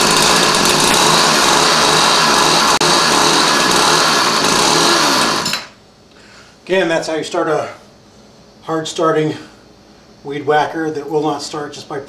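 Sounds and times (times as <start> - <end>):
string trimmer engine buzzing: 0.0 - 5.7.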